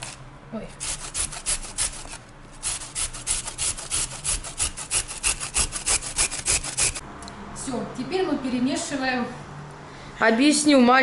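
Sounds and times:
carrot grating on metal grater: 0.8s - 7.0s.

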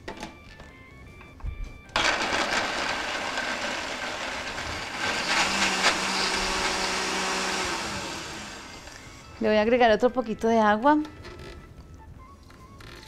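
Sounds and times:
blender running: 2.0s - 9.4s.

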